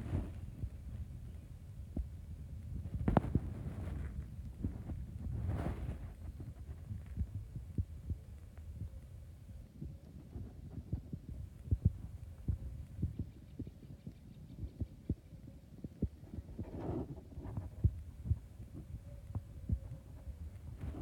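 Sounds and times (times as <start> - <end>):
faint steady hum: 0.0 - 21.0
wind buffeting microphone: 0.0 - 21.0.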